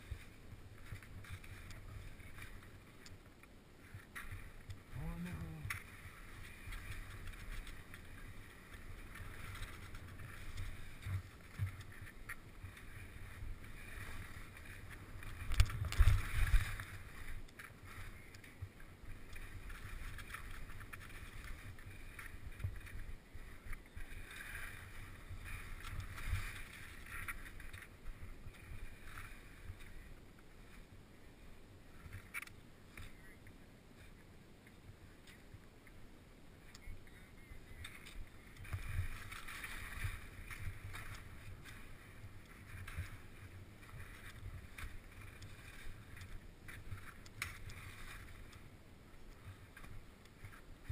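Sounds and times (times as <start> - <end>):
skis scraping over snow: 0.0 - 3.0, 3.8 - 30.9, 36.8 - 50.9
wind on microphone: 12.7 - 17.2.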